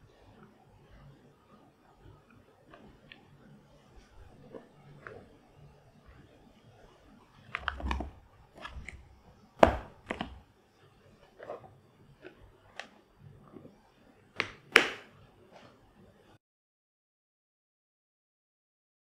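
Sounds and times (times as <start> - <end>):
plastic lid clicks and knocks: 7.5 - 9.0, 9.6 - 10.4, 14.4 - 15.1.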